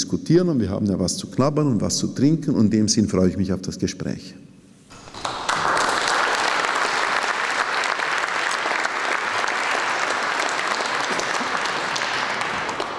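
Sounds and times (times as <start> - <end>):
audience applauding: 4.9 - 12.9.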